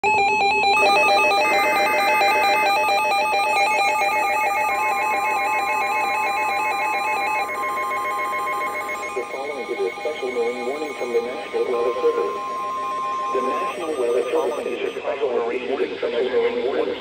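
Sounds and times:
warbling electronic alert tones: 0.0 - 15.0
steady single tone: 5.8 - 15.0.

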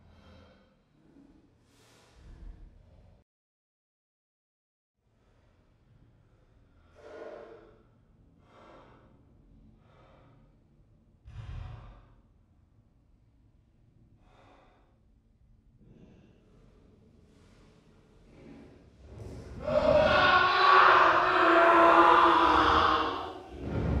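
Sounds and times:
man breathing deeply: 0.0 - 2.4, 5.1 - 12.4, 14.1 - 15.2, 15.8 - 19.7.

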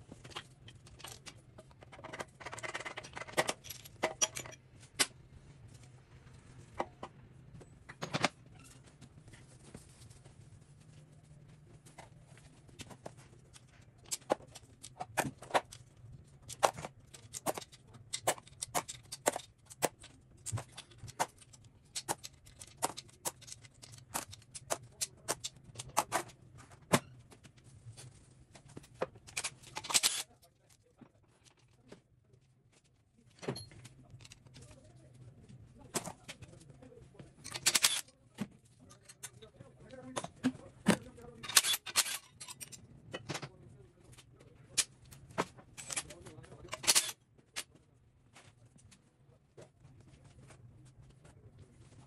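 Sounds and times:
metal tools clinking: 2.0 - 4.7, 41.4 - 42.8.

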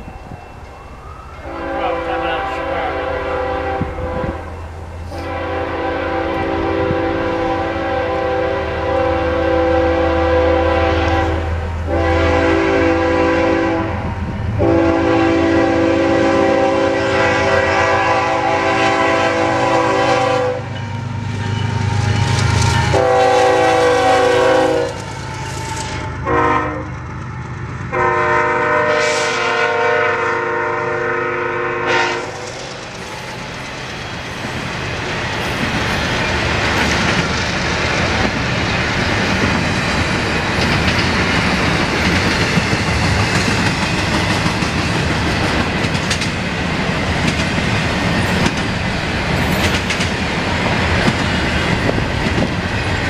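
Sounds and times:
freight cars rumbling on rails: 0.0 - 29.6, 30.4 - 53.0
train air horn blasts: 1.4 - 20.7, 21.9 - 26.9, 27.9 - 32.7.

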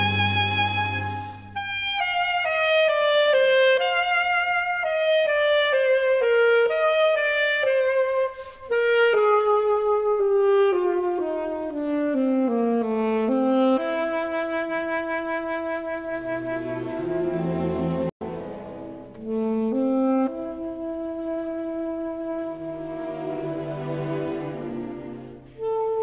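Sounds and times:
alto saxophone playing: 0.0 - 26.0
breath: 1.1 - 1.6, 8.3 - 8.7.

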